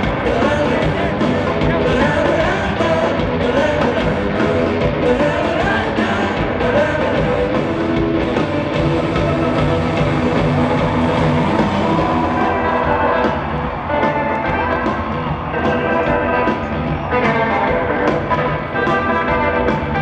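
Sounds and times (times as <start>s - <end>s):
man singing lead vocal: 0.0s - 8.0s, 10.8s - 13.5s
bass guitar: 0.0s - 20.0s
distorted electric guitar: 0.0s - 20.0s
drums: 0.0s - 20.0s.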